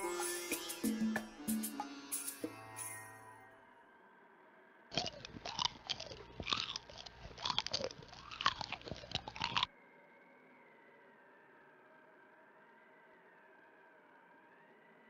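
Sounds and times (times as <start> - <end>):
cartoon chewing and crunching: 4.9 - 9.7.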